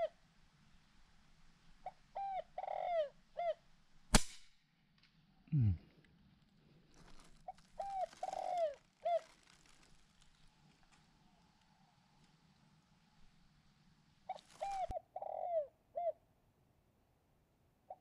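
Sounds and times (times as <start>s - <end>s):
doves cooing: 1.8s - 3.6s, 7.1s - 10.2s, 14.3s - 16.2s
sharp crack: 4.1s - 4.6s.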